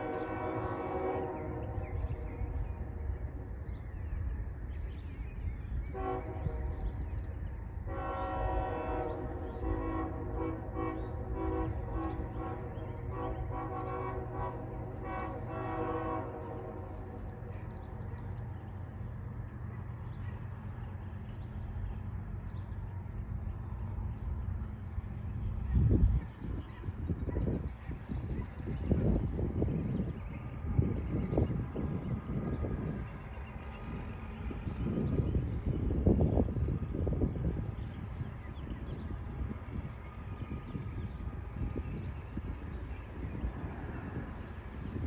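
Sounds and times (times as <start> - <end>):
locomotive air horn blasts: 0.0 - 2.6, 5.9 - 6.9, 7.9 - 17.1.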